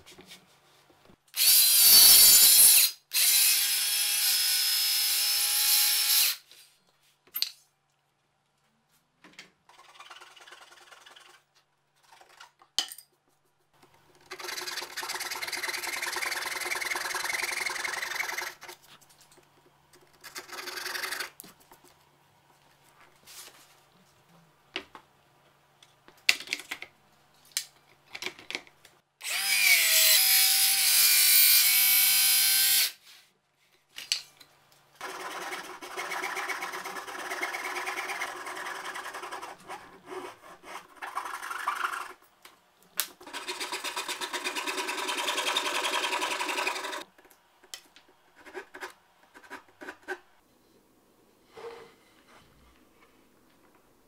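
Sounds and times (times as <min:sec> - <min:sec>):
hand saw cutting plywood: 0:14.3 - 0:18.8, 0:35.0 - 0:42.2, 0:43.2 - 0:47.1.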